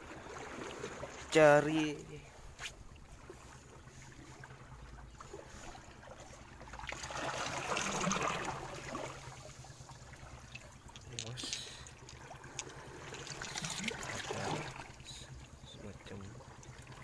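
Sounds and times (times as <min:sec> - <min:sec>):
seawater sloshing in rocks: 0:00.0 - 0:17.0.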